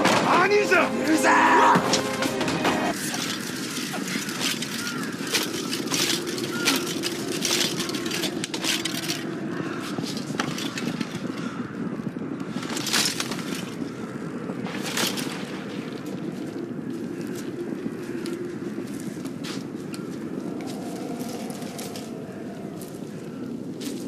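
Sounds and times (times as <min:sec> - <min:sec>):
mass of soldiers' voices: 0:00.0 - 0:10.9.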